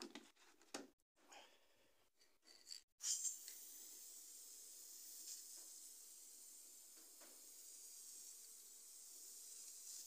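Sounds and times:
aerosol can spraying hiss: 0:03.0 - 0:10.0.

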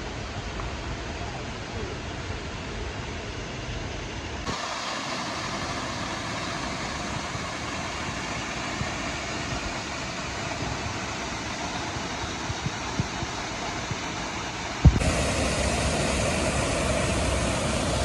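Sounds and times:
waterfall rushing: 0:04.5 - 0:18.0.

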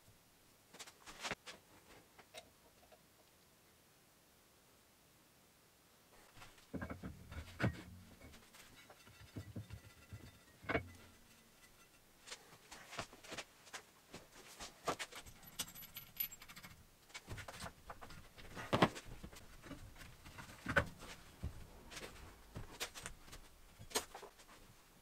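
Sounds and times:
light metal clicks and clinks: 0:15.2 - 0:16.8.

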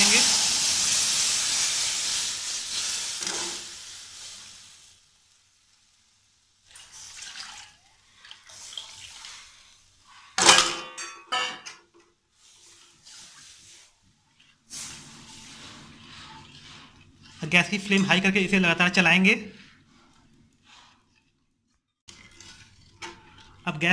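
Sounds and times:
batter sizzling in hot oil: 0:00.0 - 0:10.4, 0:12.2 - 0:23.9
liquid splashing and pouring: 0:00.0 - 0:10.4, 0:12.3 - 0:23.9
ladle stirring batter: 0:06.6 - 0:10.4, 0:12.3 - 0:23.9
steel utensils clanking on pan: 0:10.4 - 0:11.8.

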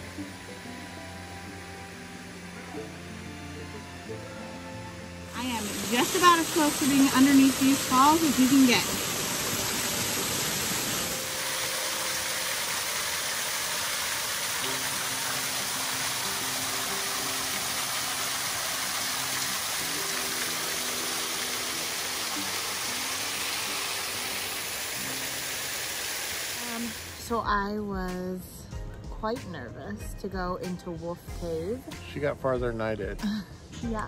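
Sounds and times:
waterfall rushing: 0:00.0 - 0:27.2
soft background music: 0:00.0 - 0:34.0.

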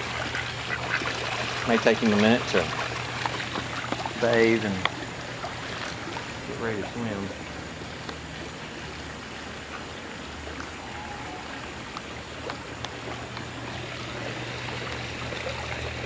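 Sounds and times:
duck splashing in water: 0:00.0 - 0:06.3
steady water noise: 0:00.0 - 0:16.0.

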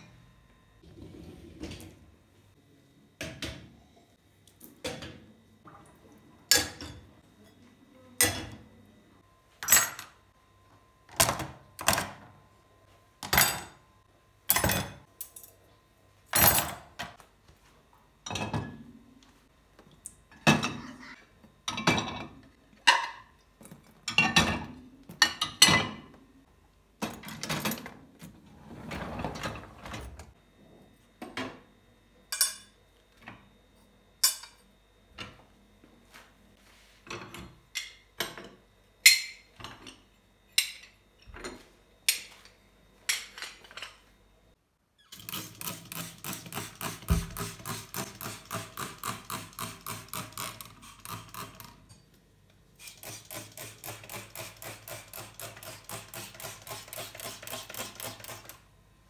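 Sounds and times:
dishes clinking in dishwasher: 0:04.8 - 0:05.3, 0:06.4 - 0:08.6, 0:09.6 - 0:10.2, 0:13.2 - 0:13.8, 0:14.5 - 0:15.6, 0:16.3 - 0:17.2, 0:18.2 - 0:18.9, 0:20.3 - 0:26.2, 0:32.3 - 0:33.4, 0:34.2 - 0:35.4, 0:37.0 - 0:44.1.

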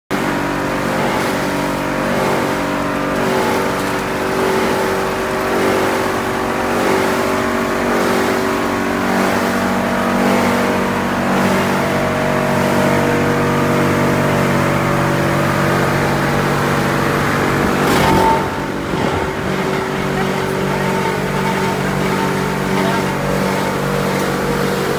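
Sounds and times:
machinery drone with held tones: 0:09.0 - 0:24.9.

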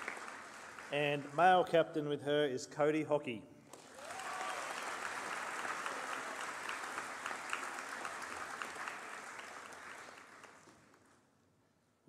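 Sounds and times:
audience applauding: 0:00.0 - 0:01.6, 0:03.7 - 0:11.2.

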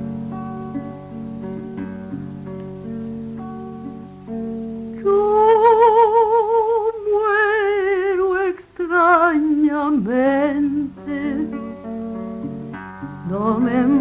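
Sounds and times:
acoustic guitar: 0:00.0 - 0:14.0
woman singing with vibrato: 0:05.0 - 0:11.7, 0:13.2 - 0:14.0.

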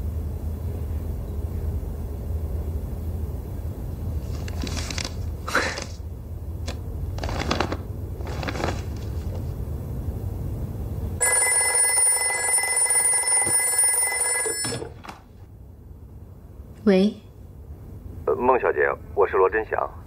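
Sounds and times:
telephone bell ringing: 0:11.2 - 0:15.1.

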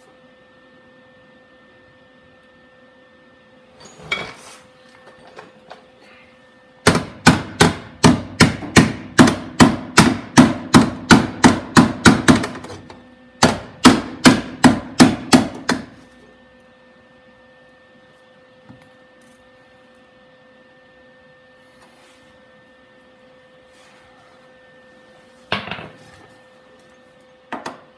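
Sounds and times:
hammer striking sheet steel: 0:06.9 - 0:12.7, 0:13.4 - 0:15.9.

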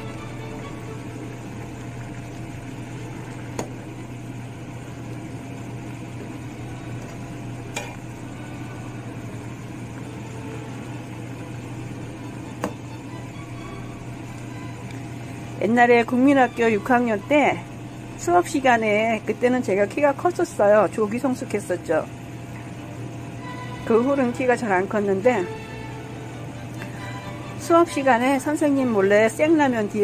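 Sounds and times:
low hum: 0:00.0 - 0:16.6
broth bubbling in a pot: 0:00.0 - 0:30.0.

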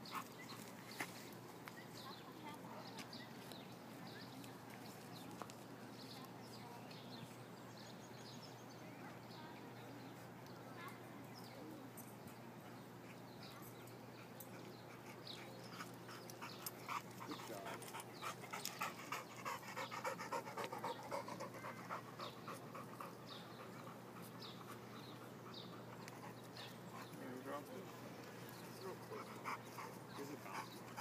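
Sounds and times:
dog panting: 0:14.1 - 0:28.0, 0:28.6 - 0:31.0.

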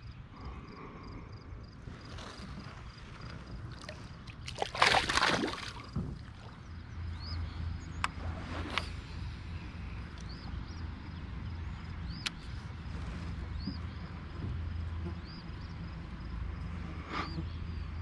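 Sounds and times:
fish splashing into water: 0:03.7 - 0:06.4.

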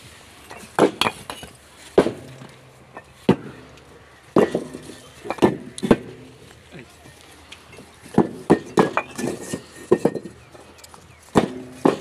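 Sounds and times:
bricks clinking together: 0:00.5 - 0:03.6, 0:04.4 - 0:06.4, 0:07.8 - 0:12.0.

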